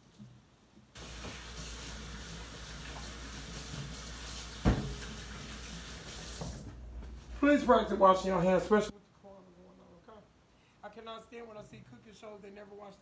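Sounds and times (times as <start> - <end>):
water running into sink: 1.0 - 6.8.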